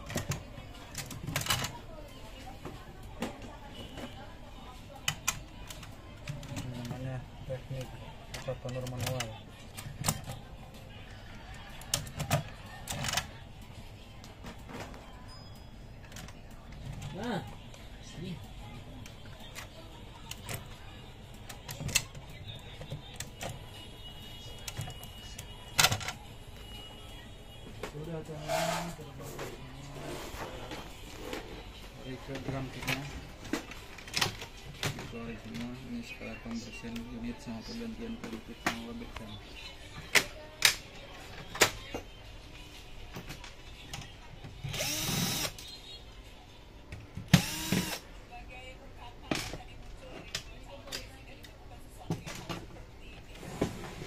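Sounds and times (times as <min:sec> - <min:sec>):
cordless screwdriver whirring: 0:44.8 - 0:45.5, 0:47.4 - 0:48.0.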